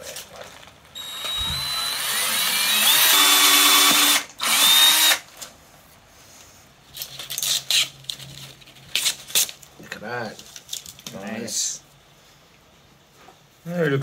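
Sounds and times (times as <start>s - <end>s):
cordless drill motor whine: 1.0s - 5.2s.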